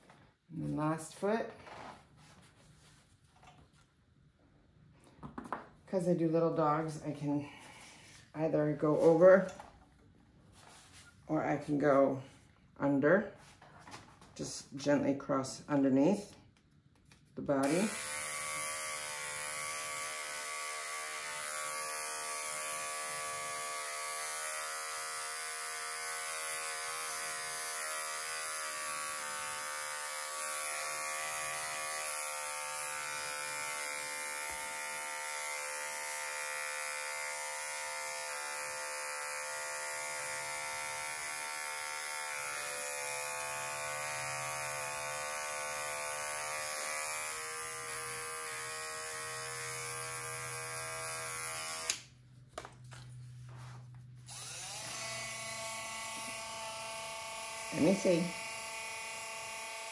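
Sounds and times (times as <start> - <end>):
electric clipper buzzing: 17.6 - 52.2, 54.2 - 59.9.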